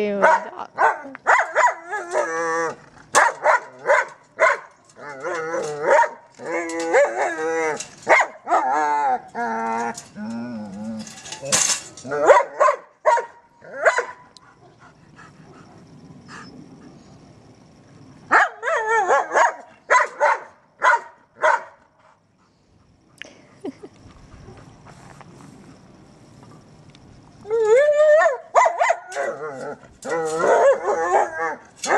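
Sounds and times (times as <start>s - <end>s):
dog barking: 0.2s - 1.8s, 3.2s - 4.7s, 5.9s - 6.2s, 8.1s - 8.6s, 12.2s - 14.3s, 18.3s - 21.8s, 28.2s - 29.0s.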